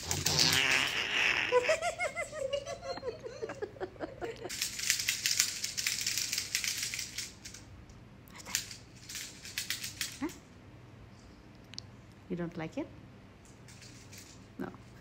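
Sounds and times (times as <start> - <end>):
parrot laughing: 0.0 - 4.5.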